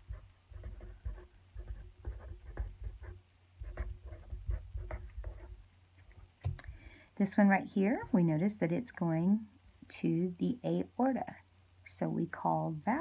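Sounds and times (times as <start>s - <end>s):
marker pen scratching on paper: 0.0s - 5.6s.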